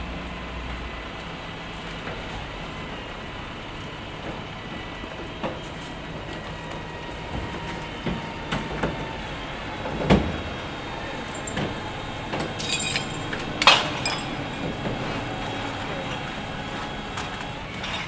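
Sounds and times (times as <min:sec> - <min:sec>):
train rumble: 0:00.0 - 0:18.0
train clacks and knocks: 0:04.1 - 0:18.0.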